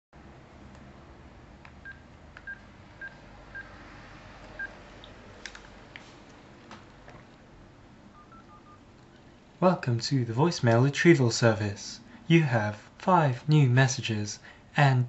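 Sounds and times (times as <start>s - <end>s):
telephone keypad beeps: 8.2s - 8.8s.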